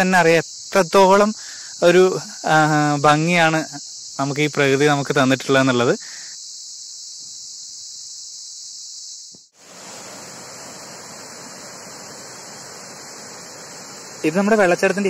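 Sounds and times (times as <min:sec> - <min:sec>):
high-pitched insect chorus: 0:00.0 - 0:15.0
waterfall rushing over rock: 0:09.6 - 0:15.0.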